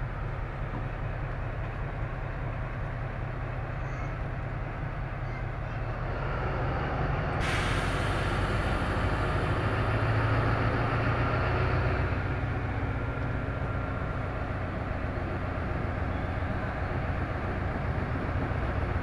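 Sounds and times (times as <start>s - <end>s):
locomotive engine droning: 0.0s - 19.0s
sudden hiss: 7.4s - 8.9s.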